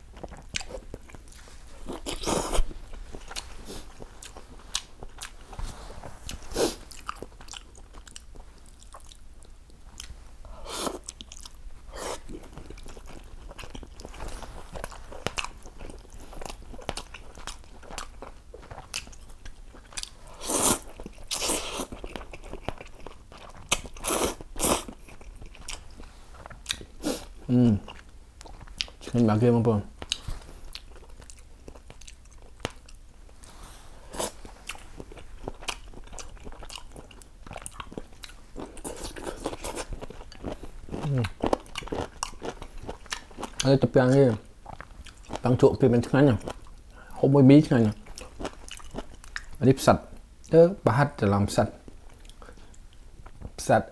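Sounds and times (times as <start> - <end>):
person chewing and biting: 0.1 - 5.5, 6.3 - 29.1, 30.0 - 33.0, 34.1 - 43.7, 48.1 - 49.6.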